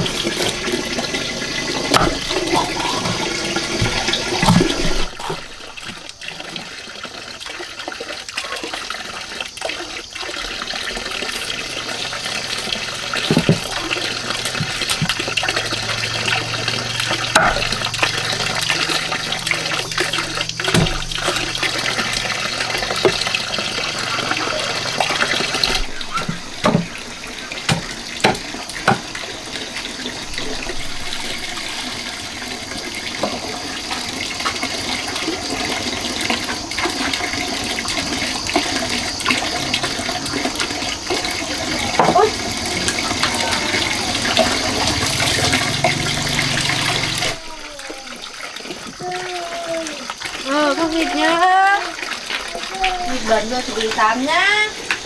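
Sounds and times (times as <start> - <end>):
water running into pot: 0.0 - 55.0.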